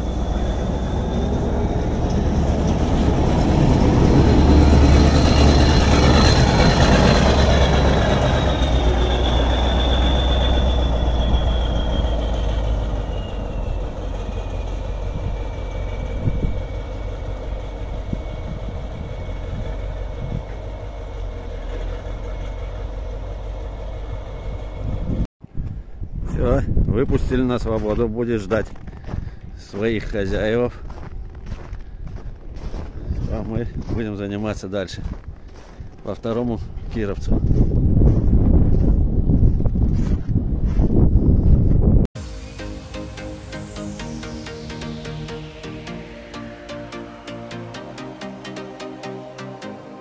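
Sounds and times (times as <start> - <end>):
thin high whine: 0.0 - 25.2, 42.2 - 50.0
tractor diesel engine driving past: 0.0 - 25.3, 42.2 - 50.0.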